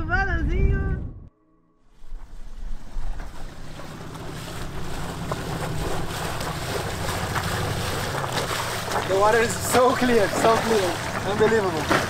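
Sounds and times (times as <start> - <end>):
wind on microphone: 0.0 - 1.3
boat engine humming: 1.9 - 12.0
water washing around hull: 2.0 - 12.0.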